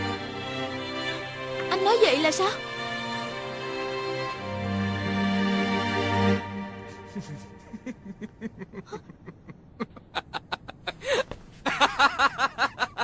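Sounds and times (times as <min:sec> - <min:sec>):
man laughing: 0:06.9 - 0:13.0.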